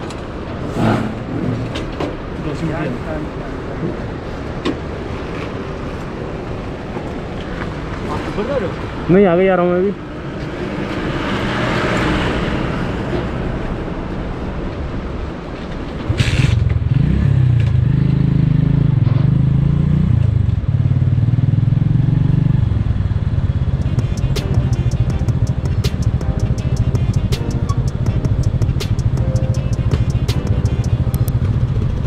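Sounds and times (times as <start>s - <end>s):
rushing noise: 0.0s - 8.0s, 23.0s - 32.0s
motorcycle engine starting and running: 16.1s - 32.0s
sharp clack: 23.8s - 31.4s.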